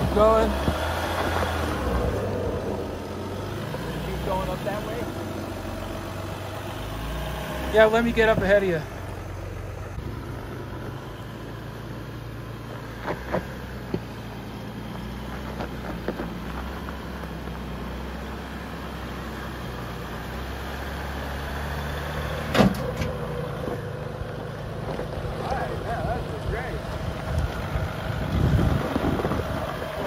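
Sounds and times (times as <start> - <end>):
diesel engine running low: 0.0 - 30.0.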